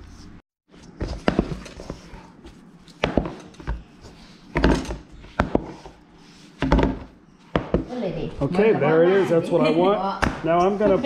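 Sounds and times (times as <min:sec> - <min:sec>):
soft rubbing of dough: 0:01.6 - 0:02.9, 0:03.6 - 0:07.5
dough thumping against metal bowl: 0:03.0 - 0:03.8, 0:04.5 - 0:05.8, 0:06.6 - 0:07.9.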